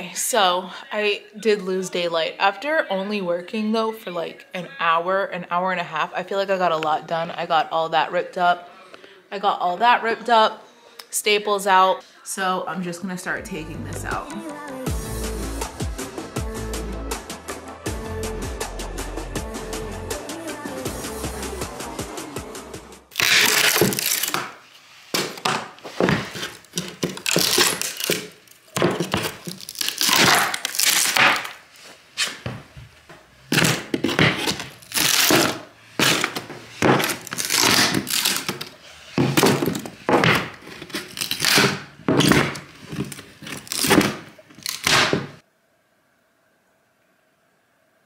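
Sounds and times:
wood cracking and splintering: 26.6s - 31.6s, 33.5s - 38.7s, 39.3s - 45.3s.

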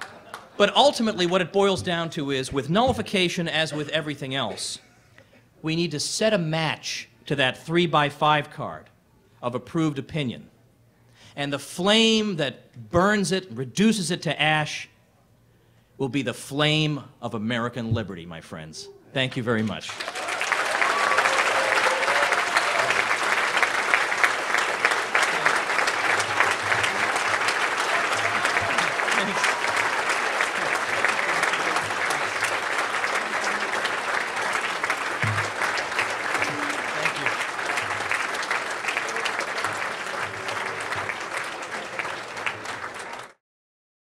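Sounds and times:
audience applauding: 0.0s - 1.4s, 19.9s - 43.4s.

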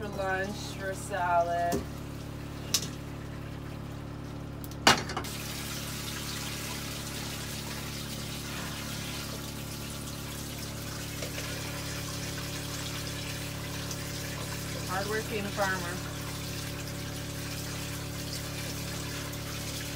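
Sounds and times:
tap water running into sink: 5.2s - 19.9s.

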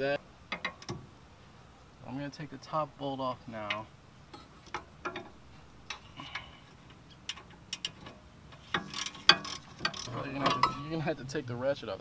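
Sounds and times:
ratchet wrench clicking: 7.1s - 10.8s.

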